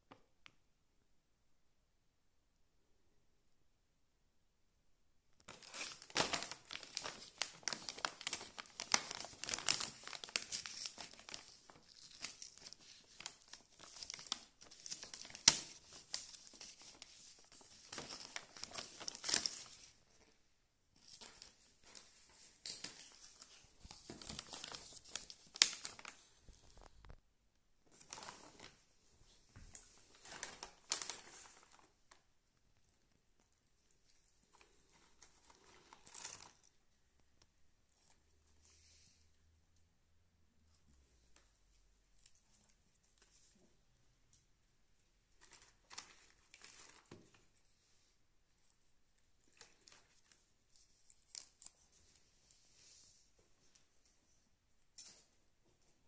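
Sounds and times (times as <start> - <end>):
plastic packaging crinkling: 5.4 - 20.0, 21.0 - 27.2, 29.6 - 32.2, 34.6 - 36.8, 45.4 - 47.5.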